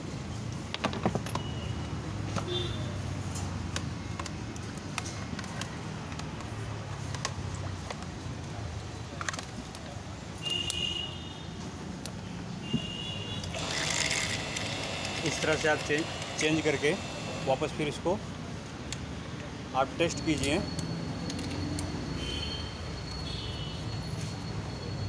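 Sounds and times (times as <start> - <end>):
metal parts clicking and tapping: 20.1 - 21.9.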